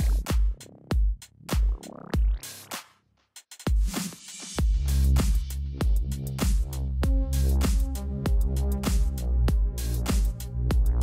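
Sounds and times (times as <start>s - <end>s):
electronic music with heavy bass: 0.0s - 3.0s, 3.7s - 11.0s.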